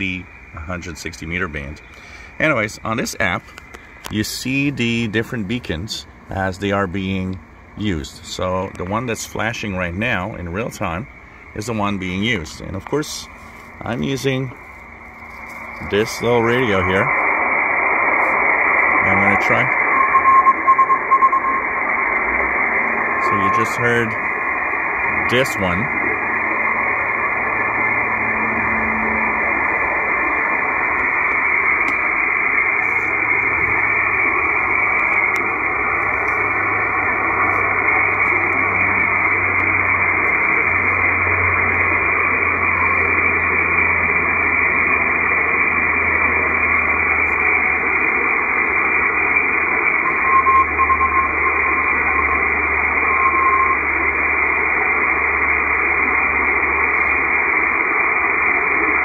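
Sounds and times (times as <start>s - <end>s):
shortwave radio static hiss: 0.0s - 59.0s
faint morse code tone: 19.0s - 21.7s, 50.0s - 53.9s.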